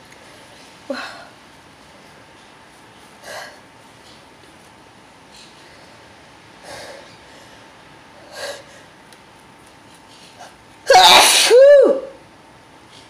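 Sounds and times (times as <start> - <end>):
man sneezing: 10.9 - 11.8.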